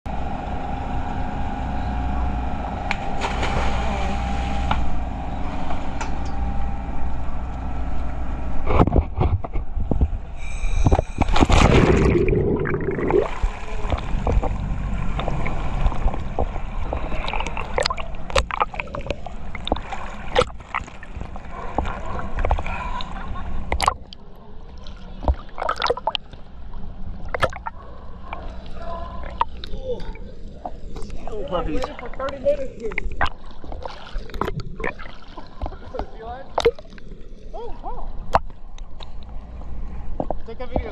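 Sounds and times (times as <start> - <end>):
boat engine running: 0.1 - 40.9
water sloshing and splashing: 2.9 - 6.1, 10.9 - 40.9
loud plunge into water: 3.0 - 5.0, 10.9 - 18.7.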